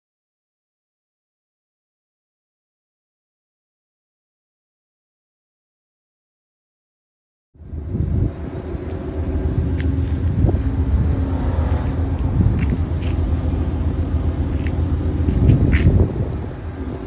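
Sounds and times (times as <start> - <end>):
train idling rumble: 7.6 - 17.0.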